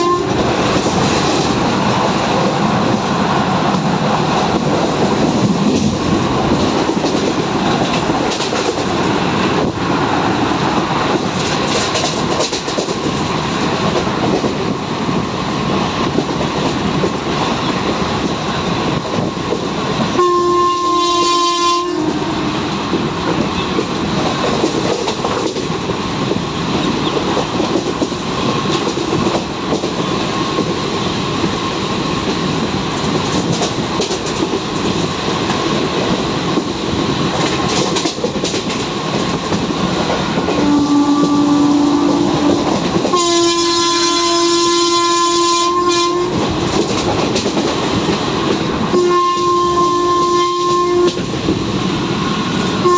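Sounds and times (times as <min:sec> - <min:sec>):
locomotive horn: 0:00.0 - 0:00.4, 0:20.1 - 0:22.6, 0:40.5 - 0:46.4, 0:48.9 - 0:51.3
train rumbling: 0:00.0 - 0:52.9.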